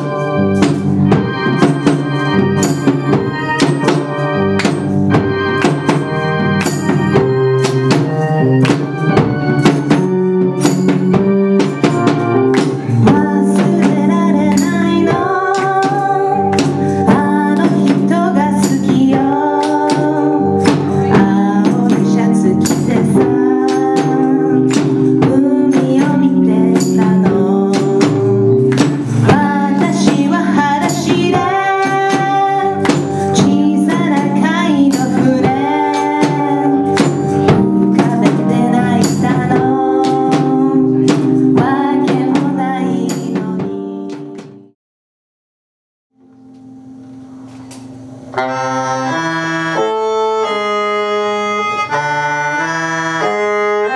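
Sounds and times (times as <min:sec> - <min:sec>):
drum kit beat: 0:00.0 - 0:44.7
keyboard: 0:00.0 - 0:44.8, 0:46.2 - 0:53.9
woman singing: 0:12.6 - 0:44.4.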